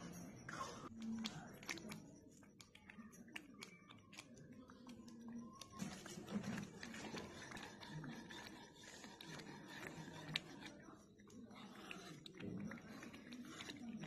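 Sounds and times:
ladle stirring in a metal pot: 5.8s - 14.0s.

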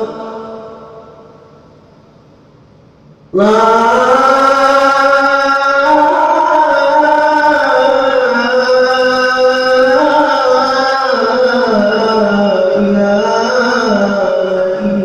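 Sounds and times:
man chanting call to prayer: 0.0s - 1.2s, 3.3s - 15.0s.

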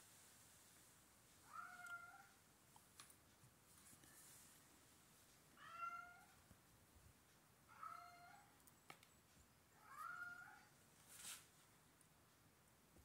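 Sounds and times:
cat meowing faintly: 1.4s - 2.4s, 9.8s - 10.7s.

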